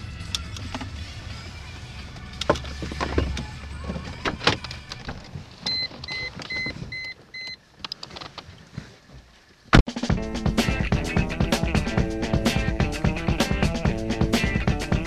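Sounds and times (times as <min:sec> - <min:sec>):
car engine rumble: 0:00.0 - 0:08.0
car warning chime beeps: 0:05.6 - 0:07.6
clicks and rustling: 0:07.8 - 0:08.9.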